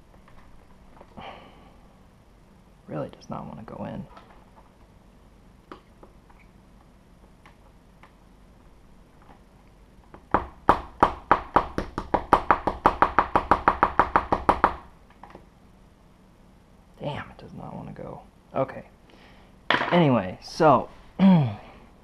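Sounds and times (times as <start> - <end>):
rapid sharp tapping knocks: 10.1 - 14.9.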